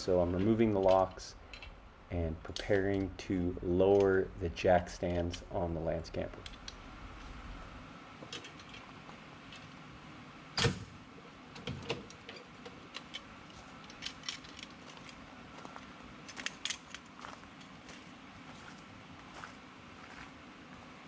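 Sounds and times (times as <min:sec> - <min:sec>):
metallic clicks and knocks: 0:00.0 - 0:01.8, 0:02.4 - 0:04.2, 0:06.3 - 0:06.8, 0:11.5 - 0:15.2, 0:16.2 - 0:17.8.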